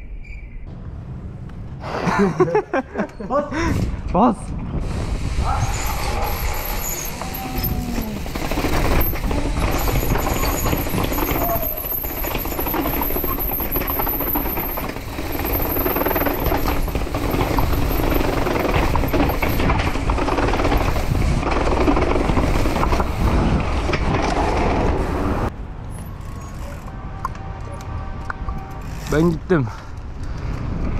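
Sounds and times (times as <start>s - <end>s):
wind rushing over microphone: 3.5s - 12.5s, 15.0s - 25.8s, 26.8s - 30.9s
bike rattling over steps: 6.3s - 25.3s.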